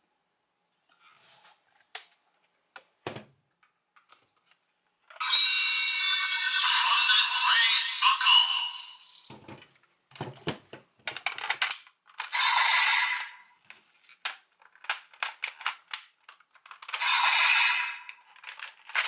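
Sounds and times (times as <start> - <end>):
toy electronic sound effects: 5.2 - 9.3, 12.3 - 13.5, 17.0 - 18.2.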